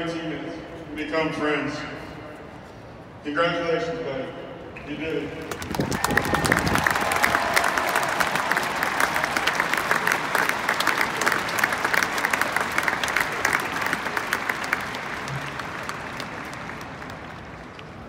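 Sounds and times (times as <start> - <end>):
crowd applauding: 5.4 - 18.0.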